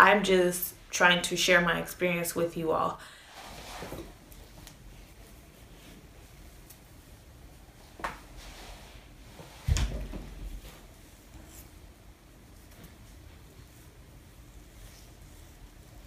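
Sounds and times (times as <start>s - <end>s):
soft rustling: 3.1s - 16.0s
hands handling hair: 3.3s - 16.0s.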